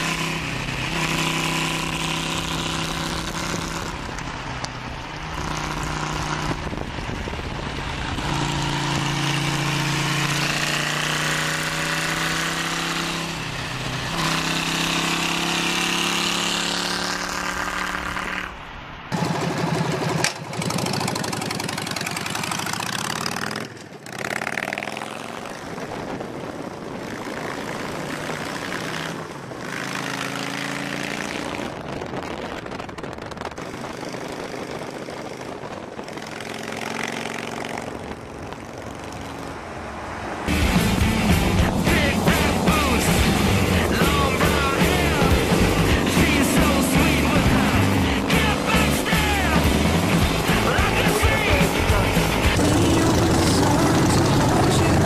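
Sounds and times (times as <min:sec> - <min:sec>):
motorcycle engine running: 0:00.0 - 0:18.5, 0:19.1 - 0:39.6, 0:40.5 - 0:55.0
rough v-twin engine running: 0:19.1 - 0:29.8, 0:31.6 - 0:39.6, 0:40.5 - 0:55.0.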